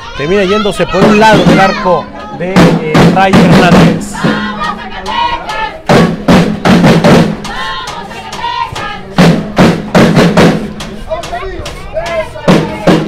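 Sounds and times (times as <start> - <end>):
heavy uneven drum hits: 2.5 - 5.2, 5.8 - 13.0.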